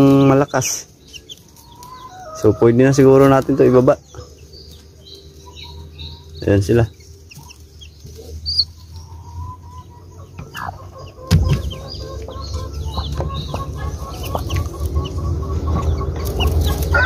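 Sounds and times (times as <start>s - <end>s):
chicks peeping: 0.0s - 17.0s
hen clucking softly: 7.3s - 17.0s
sudden knock: 11.3s - 11.7s.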